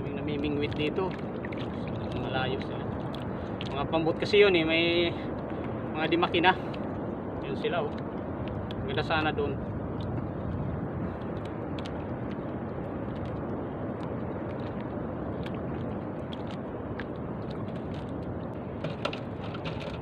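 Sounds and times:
sea water around a boat: 0:00.0 - 0:20.0
wind: 0:00.0 - 0:20.0
light clicks and knocks: 0:18.8 - 0:20.0.

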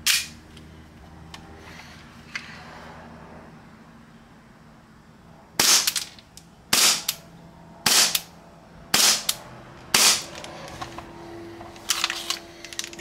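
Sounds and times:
pistol slide clacking: 0:00.0 - 0:00.3
airsoft pistol shots: 0:05.6 - 0:06.0, 0:06.7 - 0:07.2, 0:07.8 - 0:08.3, 0:08.9 - 0:10.2.

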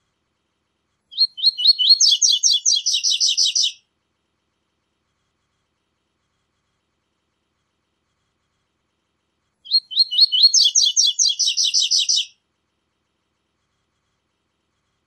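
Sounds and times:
bird singing: 0:01.1 - 0:03.8, 0:09.7 - 0:12.3.

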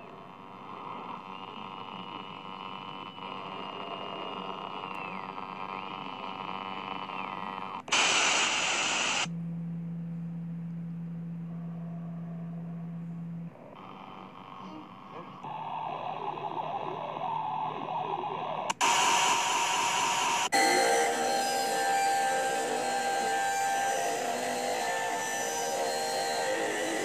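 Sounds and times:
droning background: 0:00.0 - 0:27.0
steady low hum: 0:00.0 - 0:27.0
burst of static: 0:07.8 - 0:09.3, 0:15.4 - 0:20.5
thin high tone sliding: 0:11.3 - 0:27.0.

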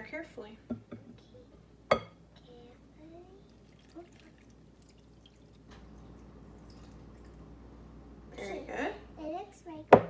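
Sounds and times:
water trickling into bowl: 0:03.4 - 0:07.5.

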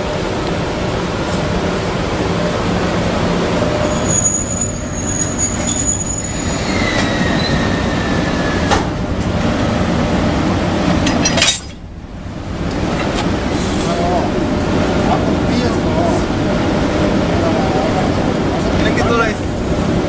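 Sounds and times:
locomotive humming: 0:00.0 - 0:20.0
wheel squeal: 0:03.7 - 0:08.8.

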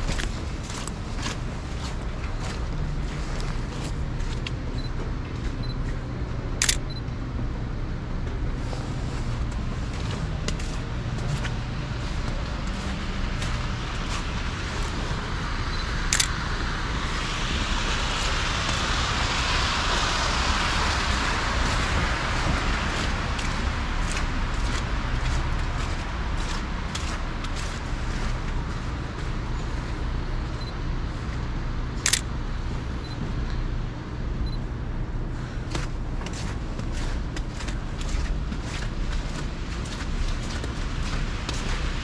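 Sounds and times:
camera shutter clicks: 0:06.6 - 0:06.9
street traffic hiss: 0:07.8 - 0:42.0.

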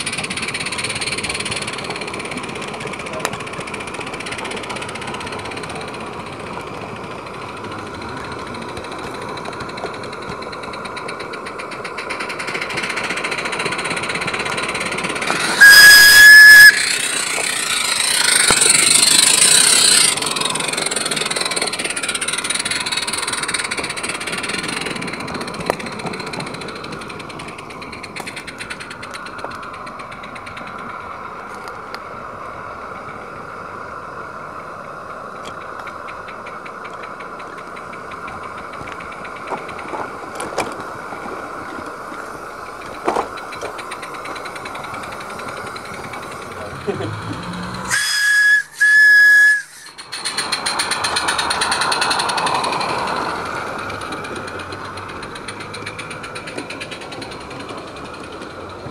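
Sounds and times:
rush of steam: 0:00.0 - 0:58.9
steam locomotive hissing: 0:00.0 - 0:58.9
steam whistle blast: 0:15.3 - 0:18.6, 0:47.6 - 0:50.0.

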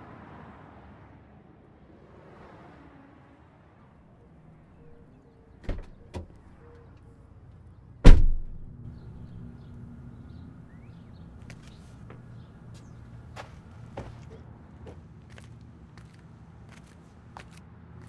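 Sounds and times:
heavy slam: 0:08.0 - 0:08.8.

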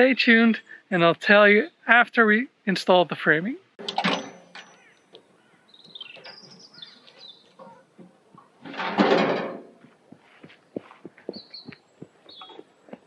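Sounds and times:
birds chirping: 0:03.8 - 0:08.7, 0:09.8 - 0:13.0.

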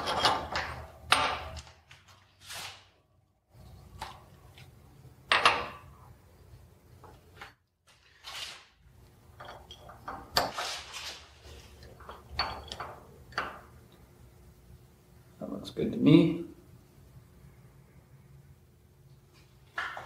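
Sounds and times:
metal clanks and clinks: 0:00.0 - 0:01.6, 0:09.3 - 0:10.6, 0:11.8 - 0:13.7
metal scraping slide: 0:10.4 - 0:11.7.

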